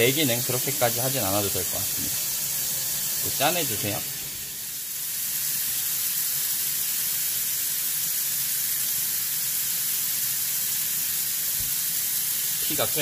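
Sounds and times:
tap running into steel sink: 0:11.6 - 0:11.8.

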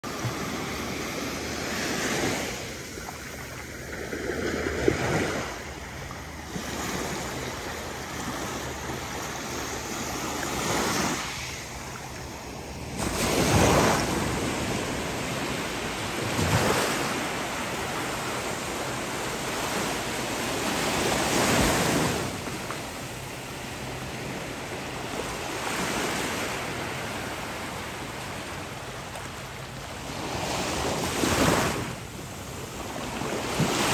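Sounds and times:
small waves breaking on beach: 0:00.0 - 0:33.9.

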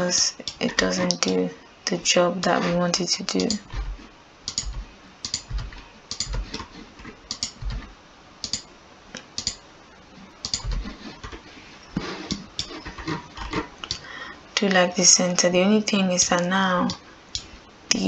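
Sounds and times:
computer mouse clicks: 0:00.4 - 0:01.3, 0:03.3 - 0:03.9, 0:04.5 - 0:06.7, 0:07.3 - 0:09.6, 0:10.4 - 0:11.4, 0:12.2 - 0:14.1, 0:16.4 - 0:17.5
keyboard key presses: 0:03.3 - 0:03.9, 0:04.5 - 0:06.7, 0:07.3 - 0:08.6, 0:09.2 - 0:09.6, 0:10.4 - 0:11.4.

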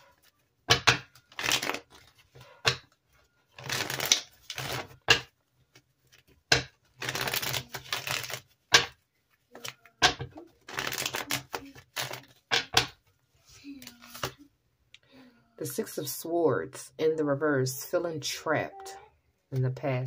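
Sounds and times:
cards riffling: 0:01.1 - 0:02.8, 0:03.5 - 0:05.3, 0:06.1 - 0:09.8, 0:10.6 - 0:12.7.

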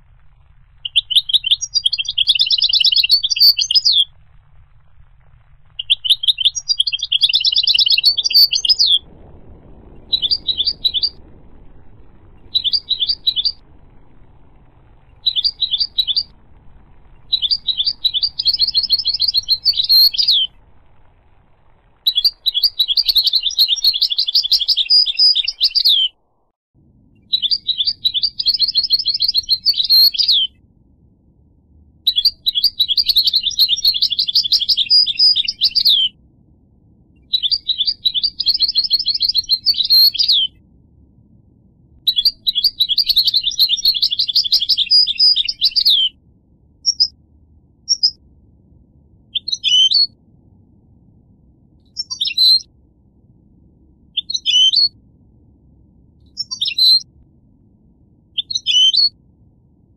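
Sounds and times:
goldfinch singing: 0:00.9 - 0:04.1, 0:05.8 - 0:09.0, 0:10.1 - 0:11.2, 0:12.5 - 0:13.6, 0:15.2 - 0:16.3, 0:17.3 - 0:20.5, 0:22.1 - 0:26.2, 0:27.4 - 0:30.5, 0:32.1 - 0:36.1, 0:37.4 - 0:40.5, 0:42.1 - 0:46.2, 0:56.4 - 0:57.0.

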